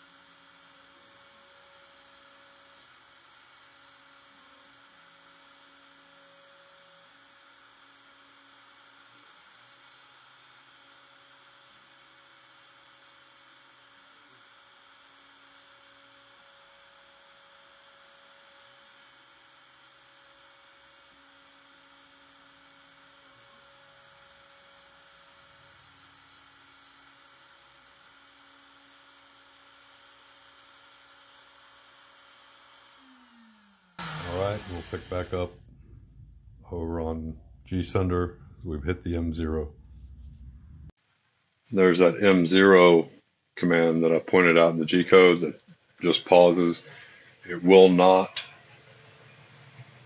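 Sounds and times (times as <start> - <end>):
router spindle hum: 0.0 - 40.9
low motor tones: 32.5 - 41.0.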